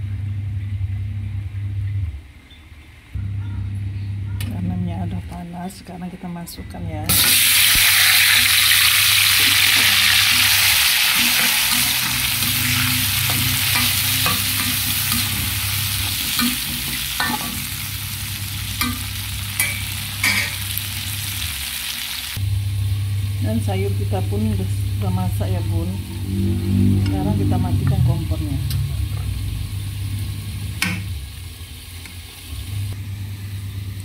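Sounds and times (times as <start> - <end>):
vegetables sizzling in hot oil: 7.1 - 22.4, 27.8 - 34.0
metal spatula scraping wok: 8.3 - 20.8.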